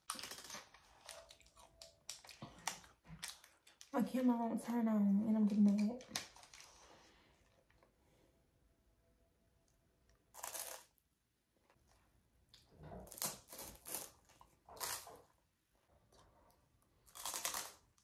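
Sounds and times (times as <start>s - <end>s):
person chewing crunchy snack: 10.3s - 10.9s, 17.0s - 18.0s.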